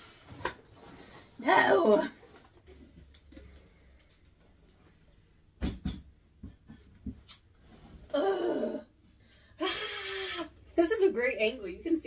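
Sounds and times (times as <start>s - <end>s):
woman's strained hum: 8.1s - 8.9s.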